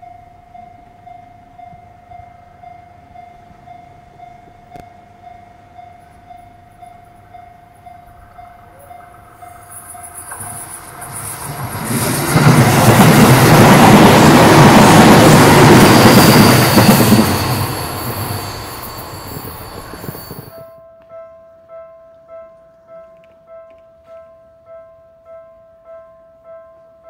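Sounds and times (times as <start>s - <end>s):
train passing: 0.0s - 20.7s.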